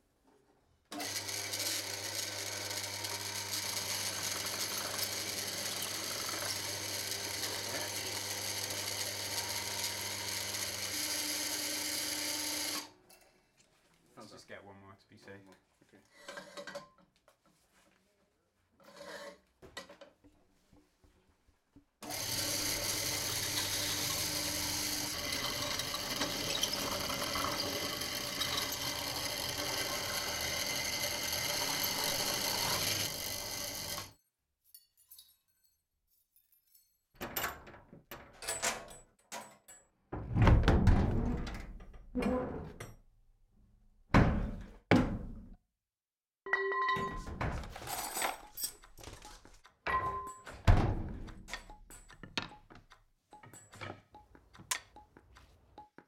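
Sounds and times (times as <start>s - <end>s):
knocks and thunks with ringing: 49.9s - 52.7s.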